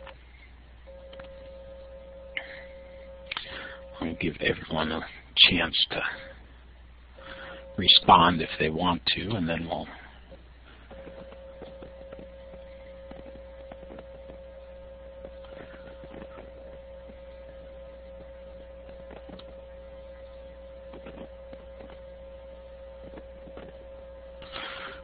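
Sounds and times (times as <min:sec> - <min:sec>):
electrical hum: 0:00.0 - 0:25.0
high-pitched whine: 0:00.0 - 0:25.0.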